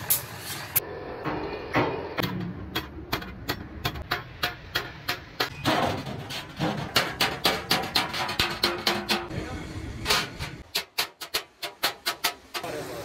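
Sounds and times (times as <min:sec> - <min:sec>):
hammer striking sheet metal: 0:01.2 - 0:09.4, 0:10.0 - 0:12.8.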